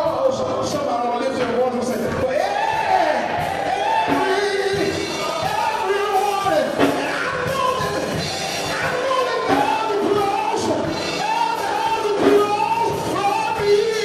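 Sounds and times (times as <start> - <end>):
musical accompaniment: 0.0 - 14.0
man singing into a microphone: 3.9 - 8.1, 8.7 - 14.0.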